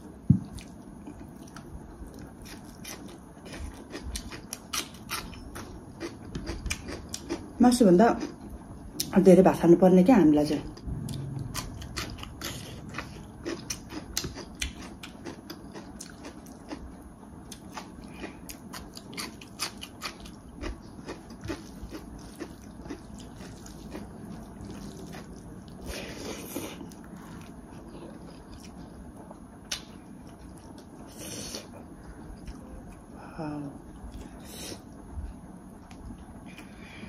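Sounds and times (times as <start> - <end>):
person chewing food: 0.4 - 7.5, 11.1 - 33.1.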